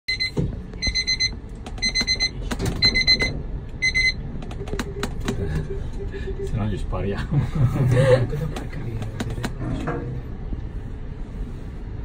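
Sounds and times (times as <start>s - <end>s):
high electronic beeps: 0.1s - 6.6s
lift car rumbling: 0.1s - 12.0s.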